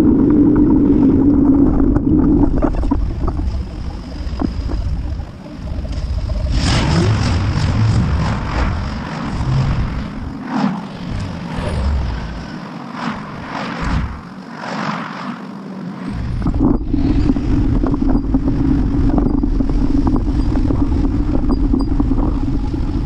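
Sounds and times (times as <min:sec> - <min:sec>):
wind and road noise: 0:00.0 - 0:23.0
cars passing: 0:06.6 - 0:17.8.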